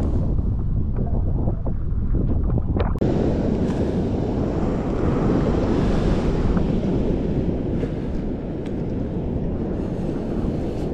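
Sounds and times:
choppy sea water: 0:00.0 - 0:10.9
wind rumbling on microphone: 0:00.0 - 0:10.9.

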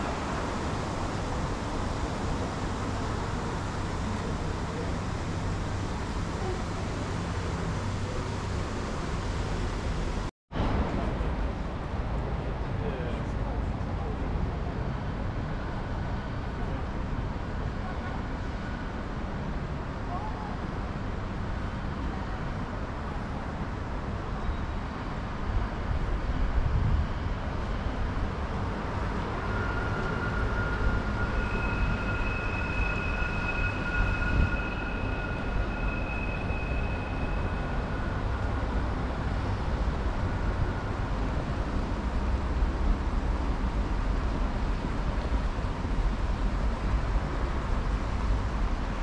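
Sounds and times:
low rumble of traffic: 0:00.0 - 0:49.0
high-pitched whine: 0:28.6 - 0:42.4.

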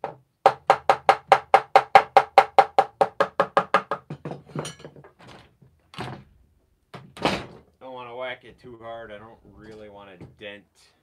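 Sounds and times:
hollow knocks on wood: 0:00.0 - 0:05.0.

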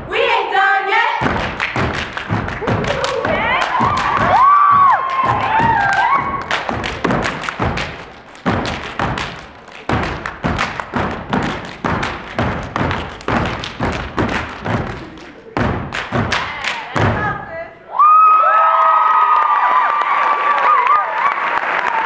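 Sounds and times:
hand claps: 0:01.2 - 0:17.1
boots stomping on wooden stage: 0:01.2 - 0:17.4.

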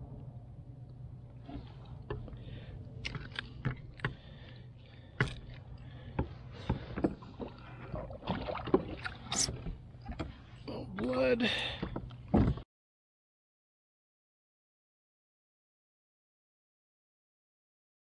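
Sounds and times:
steady low hum: 0:00.0 - 0:12.6.

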